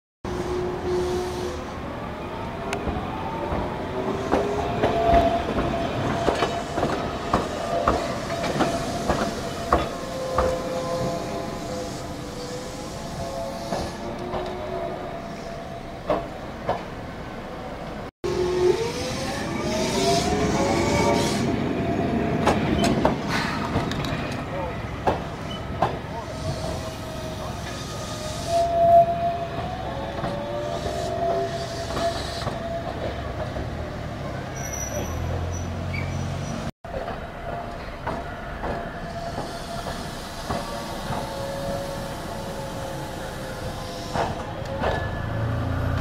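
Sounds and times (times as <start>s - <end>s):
tram running rumble: 0.3s - 46.0s
tram wheels squealing: 3.4s - 16.4s, 18.3s - 46.0s
hiss: 7.4s - 14.0s, 26.2s - 28.6s, 39.1s - 44.5s
streetcar wheels knocking on rail joints: 25.0s - 26.0s.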